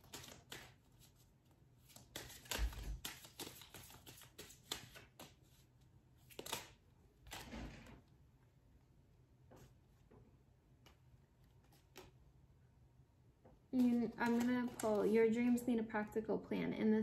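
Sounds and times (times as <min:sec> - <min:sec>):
cards being shuffled: 0:00.0 - 0:07.5, 0:10.8 - 0:12.2, 0:13.8 - 0:15.5.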